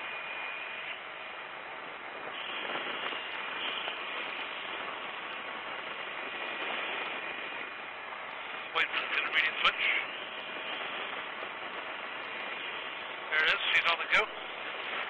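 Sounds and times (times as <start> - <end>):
faint high whine: 0.0 - 15.0.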